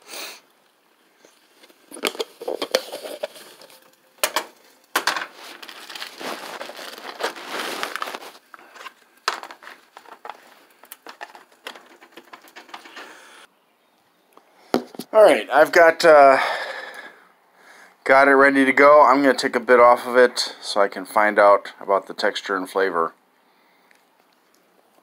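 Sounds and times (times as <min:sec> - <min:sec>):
plastic wrap crinkling: 0:01.3 - 0:13.4.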